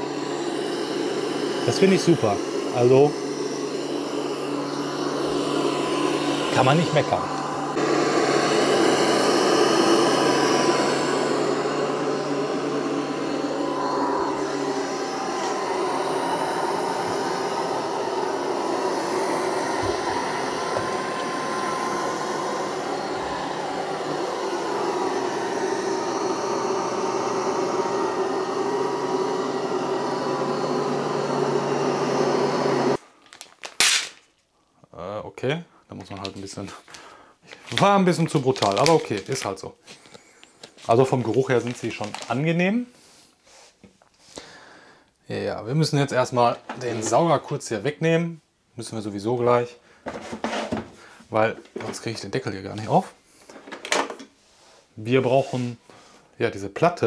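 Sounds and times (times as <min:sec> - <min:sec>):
robot vacuum whirring: 0:00.0 - 0:33.0.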